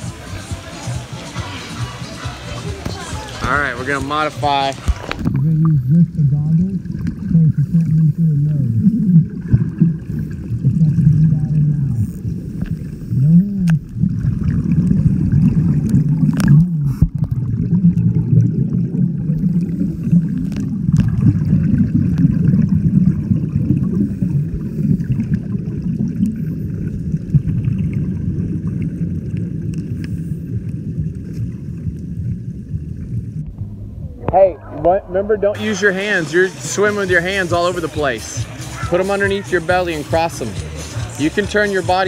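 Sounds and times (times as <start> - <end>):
muffled underwater noise: 0.0 - 42.0
water gurgles: 0.0 - 42.0.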